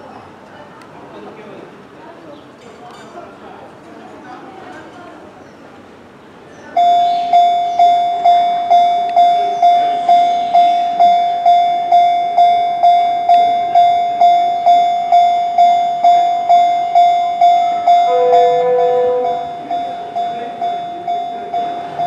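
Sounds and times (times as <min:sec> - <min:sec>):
level crossing alarm clanging: 0:06.8 - 0:22.0.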